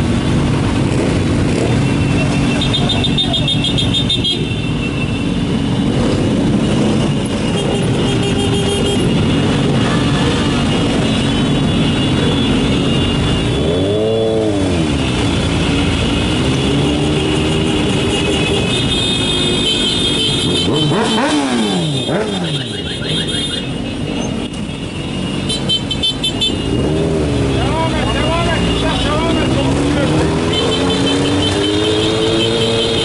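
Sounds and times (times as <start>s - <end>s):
motorcycle engines running: 0.0s - 33.0s
road noise: 0.0s - 33.0s
engine revving: 9.4s - 18.6s, 20.4s - 23.3s, 26.6s - 33.0s.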